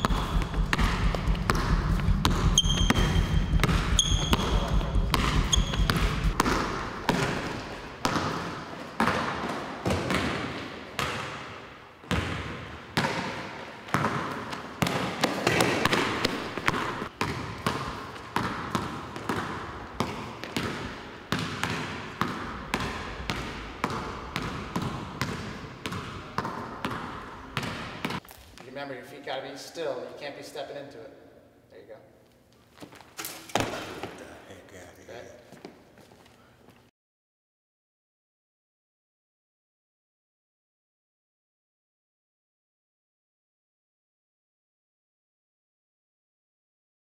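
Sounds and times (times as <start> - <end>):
basketball bouncing on wooden floor: 0.0 - 11.4, 12.0 - 28.2
sneakers squeaking: 0.0 - 28.7.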